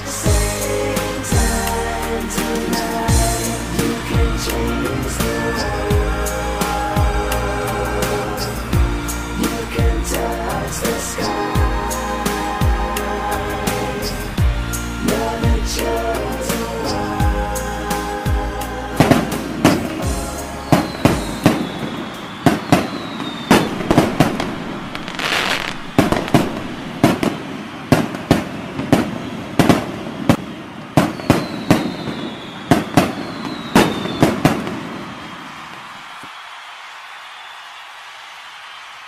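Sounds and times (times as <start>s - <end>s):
fireworks banging: 19.0s - 35.8s
high falling firework whistle: 19.1s - 38.9s.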